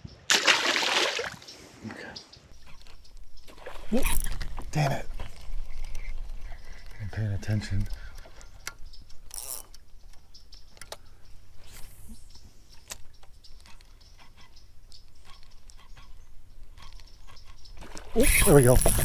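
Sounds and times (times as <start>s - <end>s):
fishing reel clicking: 9.3s - 9.8s.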